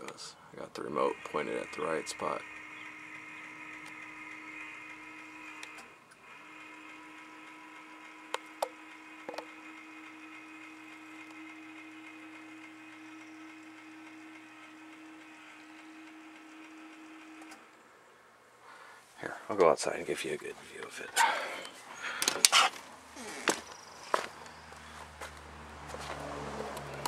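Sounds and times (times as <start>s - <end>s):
electric motor humming: 0.0s - 18.4s, 20.0s - 27.0s
sharp clicks: 2.4s - 6.2s.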